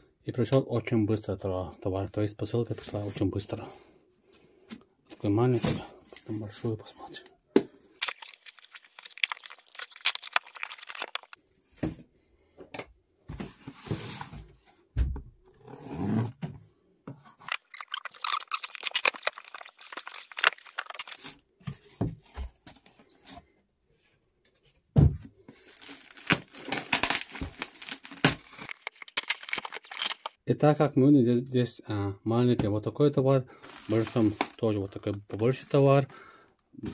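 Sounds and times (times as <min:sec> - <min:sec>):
packaging tearing and crinkling: 0:08.0 - 0:11.4, 0:17.4 - 0:21.4, 0:25.6 - 0:30.4, 0:33.7 - 0:34.7.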